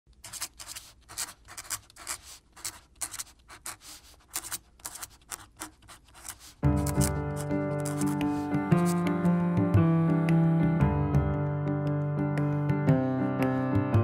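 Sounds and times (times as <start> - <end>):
pen scratching on paper: 0.1 - 9.2.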